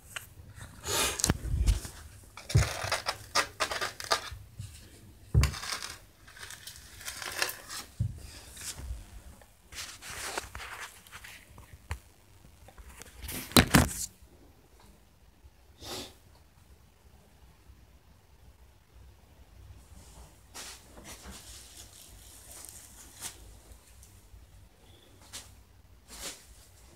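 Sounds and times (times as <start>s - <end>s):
scraping and rustling handling: 0.0s - 12.1s, 20.0s - 24.2s.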